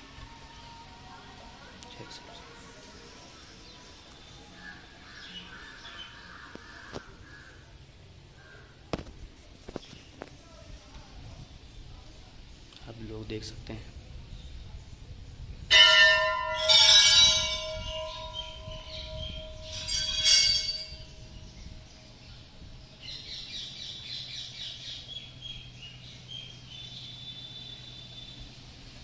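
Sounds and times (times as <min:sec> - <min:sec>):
temple bell ringing: 0:15.7 - 0:22.5
bird chirping: 0:17.1 - 0:29.0.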